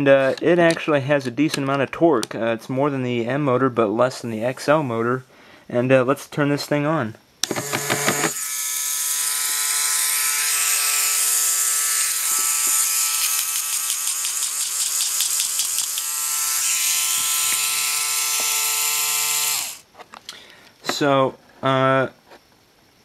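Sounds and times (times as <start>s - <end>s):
electric motor whine: 7.4s - 19.8s.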